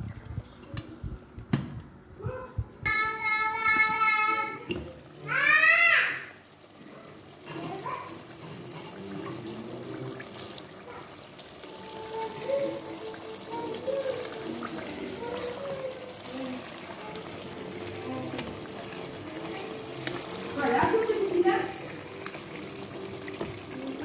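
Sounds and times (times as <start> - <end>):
stew bubbling in a pot: 4.9 - 24.0
wooden spoon stirring: 7.4 - 24.0.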